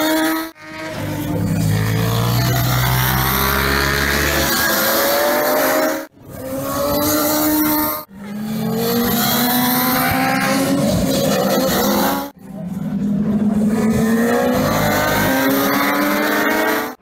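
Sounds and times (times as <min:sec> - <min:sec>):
racing motorcycles accelerating: 0:00.0 - 0:17.0.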